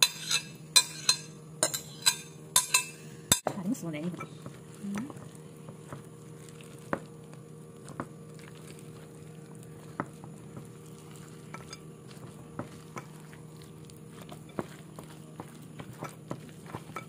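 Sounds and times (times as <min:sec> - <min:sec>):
batter squishing in a bowl: 0:03.5 - 0:17.0.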